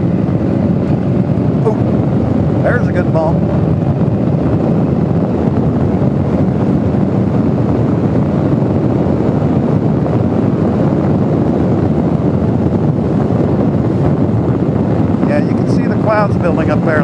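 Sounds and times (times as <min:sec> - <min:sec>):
motorcycle engine running: 0:00.0 - 0:17.0
wind rushing on microphone: 0:00.0 - 0:17.0.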